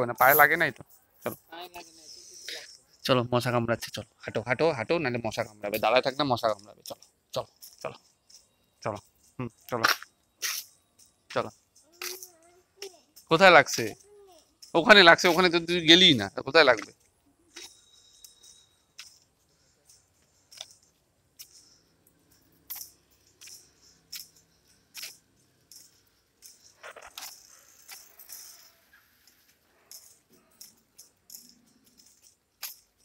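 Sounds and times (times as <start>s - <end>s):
footsteps on concrete path: 16.7s - 21.6s.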